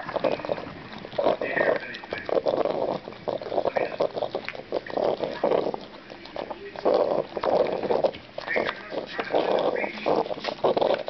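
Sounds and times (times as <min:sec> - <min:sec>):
dog snorting and snuffling: 0:00.0 - 0:11.0
wet smacking and licking: 0:00.0 - 0:11.0.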